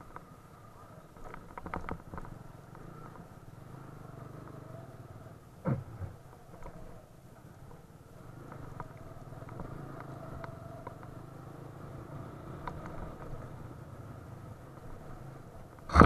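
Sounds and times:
gravel clicks and rattling parts: 0:00.0 - 0:03.4, 0:05.6 - 0:11.2, 0:12.6 - 0:13.7.

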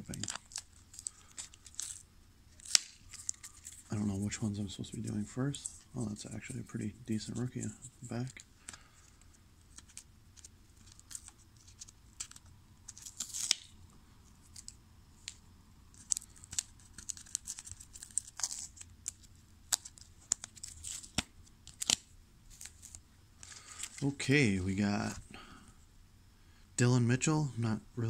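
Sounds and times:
tape peeling off plastic: 0:00.1 - 0:03.9, 0:09.7 - 0:13.8, 0:14.5 - 0:23.0
cards rubbing and sliding: 0:02.6 - 0:08.4.

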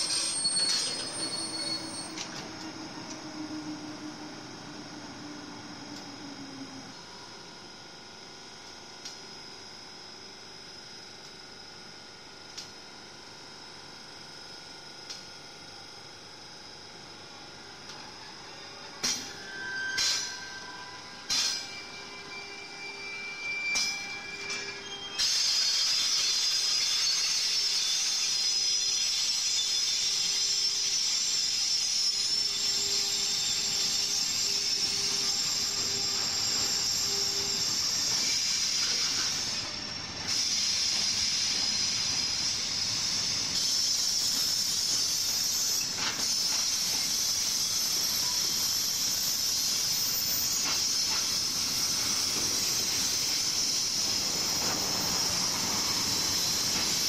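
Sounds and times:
freight train wheels on rails: 0:00.0 - 0:06.6, 0:23.7 - 0:57.0.

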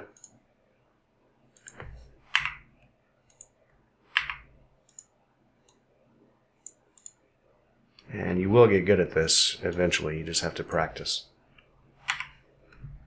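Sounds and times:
computer mouse clicks: 0:00.1 - 0:00.4, 0:01.5 - 0:05.8, 0:06.6 - 0:07.2, 0:12.0 - 0:12.8.

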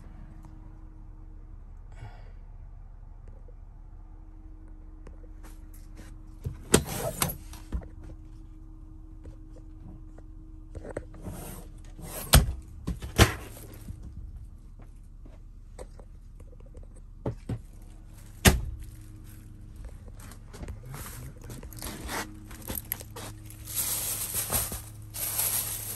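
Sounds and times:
rustling: 0:17.8 - 0:25.9.

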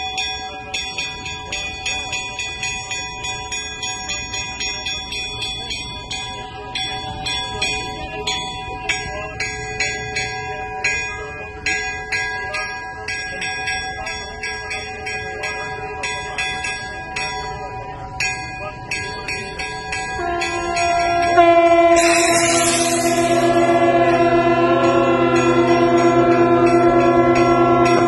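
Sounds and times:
church bells pealing: 0:00.0 - 0:28.0
steady held tone: 0:16.6 - 0:28.0.

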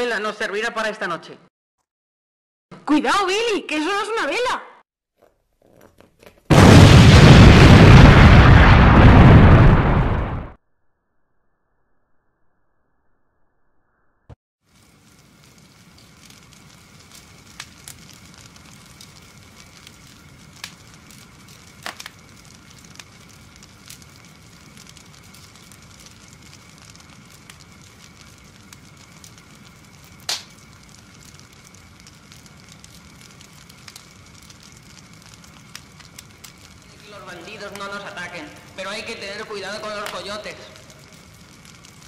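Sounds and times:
campfire crackling and popping: 0:05.6 - 0:10.5, 0:14.7 - 0:42.0.

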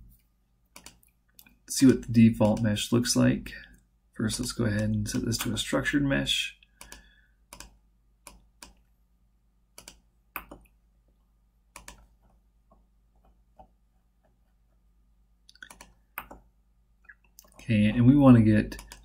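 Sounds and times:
computer mouse clicking: 0:00.7 - 0:02.7, 0:06.8 - 0:08.9, 0:09.8 - 0:10.7, 0:11.7 - 0:12.4, 0:15.5 - 0:16.5, 0:18.7 - 0:19.0.

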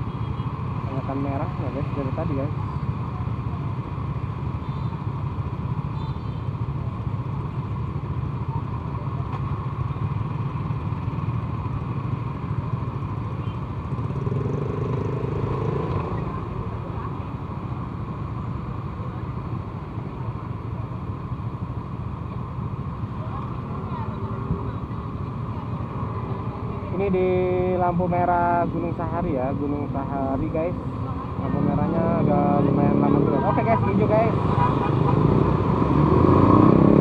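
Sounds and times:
engine revving: 0:31.5 - 0:37.0.

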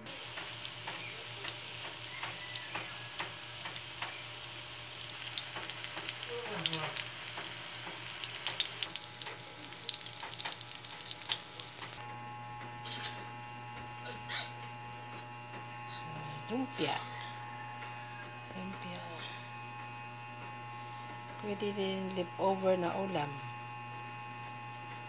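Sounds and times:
spring rolls sizzling in oil: 0:00.0 - 0:12.0.

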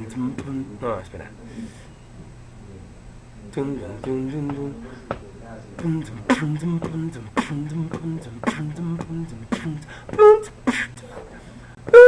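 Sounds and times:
man beatboxing: 0:00.0 - 0:00.7, 0:05.8 - 0:11.2
hummed low bass line: 0:05.8 - 0:12.0.

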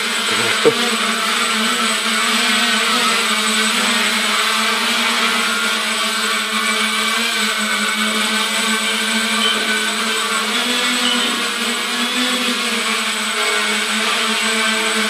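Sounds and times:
drone propellers buzzing: 0:00.2 - 0:01.0.

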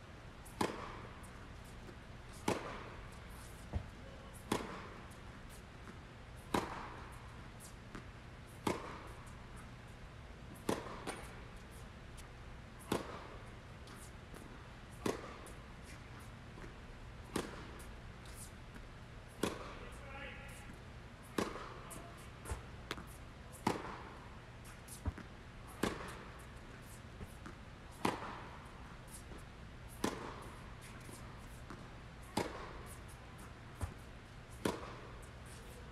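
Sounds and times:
tennis racket hitting ball: 0:00.5 - 0:01.7, 0:02.3 - 0:05.6, 0:06.4 - 0:09.4, 0:10.6 - 0:11.4, 0:12.8 - 0:18.5, 0:19.3 - 0:20.0, 0:21.3 - 0:29.3, 0:29.9 - 0:33.2, 0:33.8 - 0:35.7.

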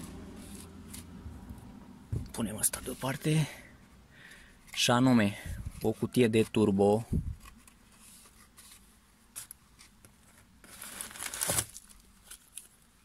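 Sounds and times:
newspaper rustling and crinkling: 0:07.4 - 0:13.0.

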